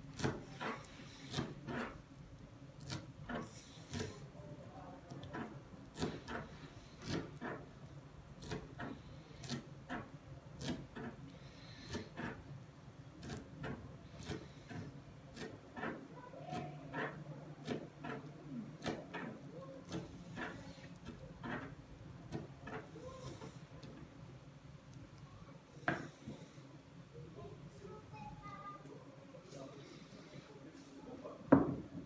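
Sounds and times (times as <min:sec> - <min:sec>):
knife knocking on cutting board: 0:31.5 - 0:31.8.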